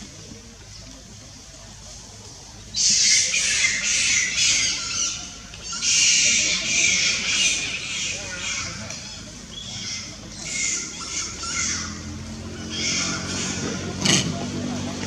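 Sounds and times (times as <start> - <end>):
high-pitched animal screeching: 12.6 - 13.8.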